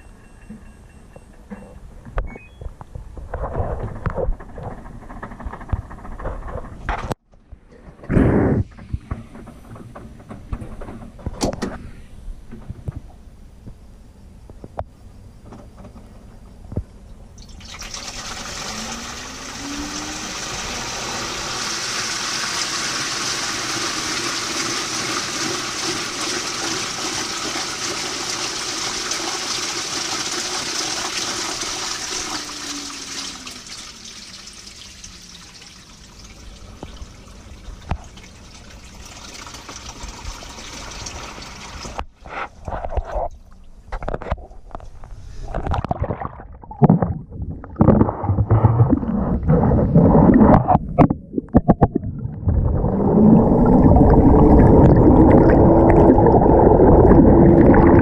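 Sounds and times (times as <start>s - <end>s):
faint motor hum: 9.0s - 23.6s, 31.6s - 43.9s
water churning in washing machine: 17.4s - 42.1s, 51.7s - 58.0s
muffled low thuds underwater: 45.5s - 58.0s.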